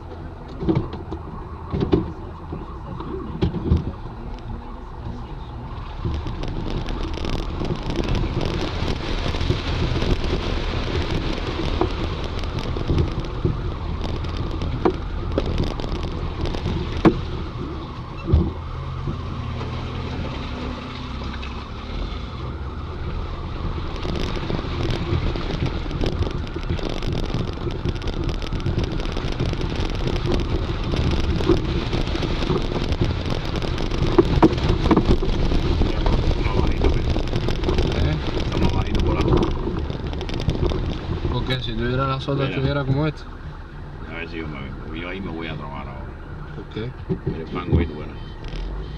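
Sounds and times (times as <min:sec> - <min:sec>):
vehicle body rattling and bumping: 0:00.0 - 0:44.0, 0:44.6 - 0:48.9
engine hum: 0:00.0 - 0:48.9.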